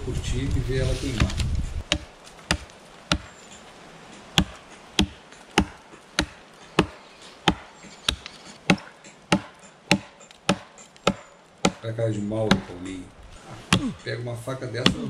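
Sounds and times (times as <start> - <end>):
knife chopping wood log: 1.2 - 3.4, 4.4 - 11.8, 12.4 - 12.8, 13.7 - 14.0, 14.8 - 15.0.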